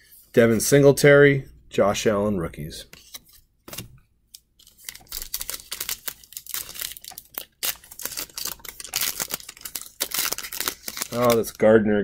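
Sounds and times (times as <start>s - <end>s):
foil wrapper crinkling and tearing: 4.6s - 11.6s.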